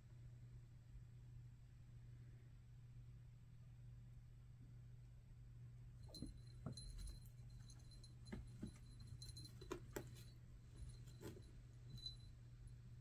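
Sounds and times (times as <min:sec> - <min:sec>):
steady low hum: 0:00.0 - 0:13.0
kitten paws tapping carpet: 0:06.0 - 0:12.3.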